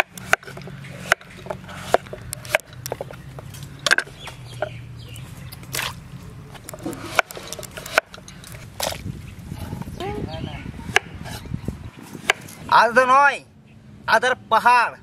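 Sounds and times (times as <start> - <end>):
knife chopping on wooden board: 0.0 - 3.1, 6.8 - 8.2, 12.2 - 12.6.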